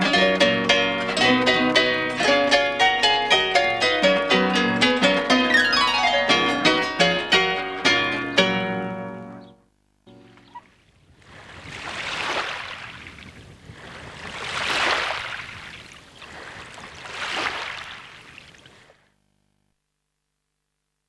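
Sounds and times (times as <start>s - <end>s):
waves washing onto sandy shore: 11.2s - 18.4s.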